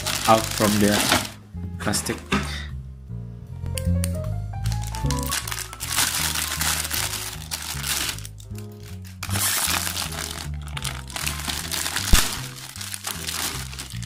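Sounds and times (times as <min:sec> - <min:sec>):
plastic bag crinkling: 0:00.0 - 0:01.4, 0:04.7 - 0:14.0
background music: 0:00.0 - 0:14.0.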